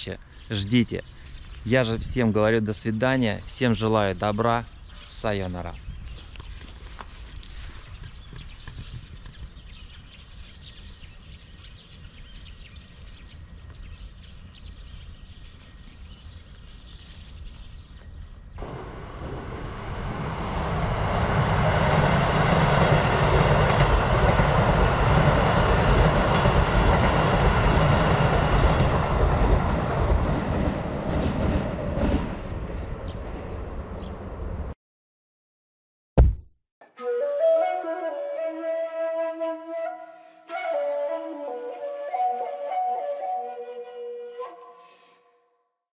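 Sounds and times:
low outdoor rumble: 18.6s - 24.9s
train running past: 18.6s - 34.7s.

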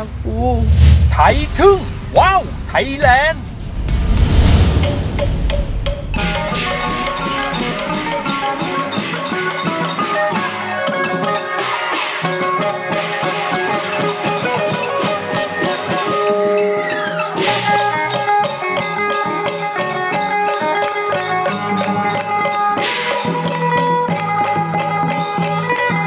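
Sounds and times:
fast drum and percussion beat: 0.0s - 26.0s
folk ensemble playing: 6.1s - 11.9s
held melodic notes: 6.2s - 11.3s.

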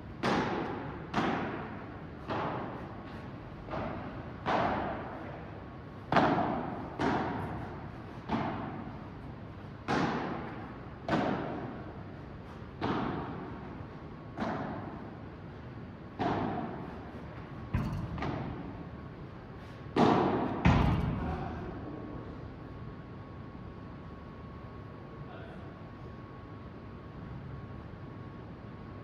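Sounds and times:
padel ball hits echoing: 17.7s - 18.7s.

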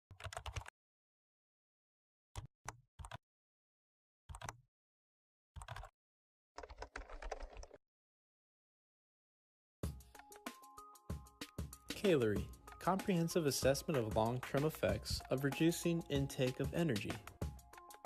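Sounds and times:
rapid keyboard-like clicking: 0.1s - 0.7s, 4.3s - 4.6s, 5.6s - 5.9s, 6.6s - 7.8s.

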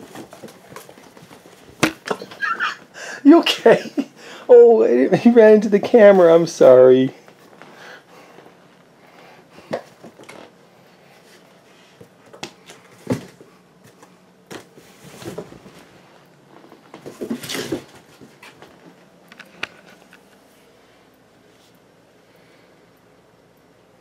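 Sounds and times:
kittens thumping and rustling: 0.0s - 2.7s, 12.0s - 19.0s.

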